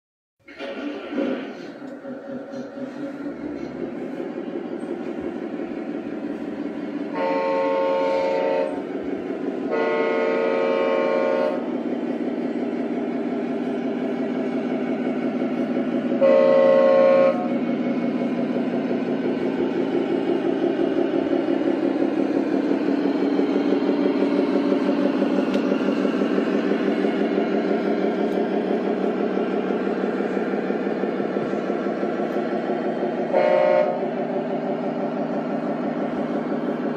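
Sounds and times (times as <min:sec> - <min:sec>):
diesel engine running: 0:00.4 - 0:36.9
air horn blasts: 0:07.0 - 0:09.0, 0:09.6 - 0:11.8, 0:16.1 - 0:17.6, 0:33.3 - 0:34.2.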